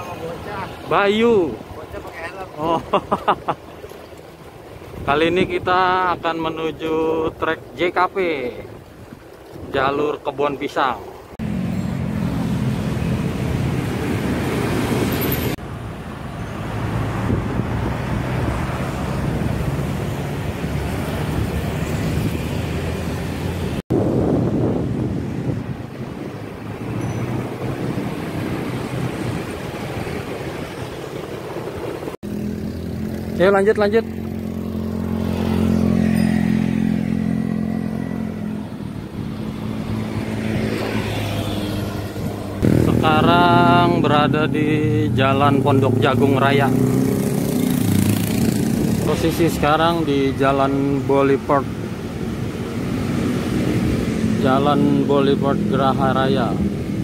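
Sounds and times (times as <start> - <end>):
car engines: 0.0 - 57.0
road and wind noise: 0.0 - 57.0
motor scooter engine: 31.6 - 44.6
motorcycle engine running: 42.0 - 44.8.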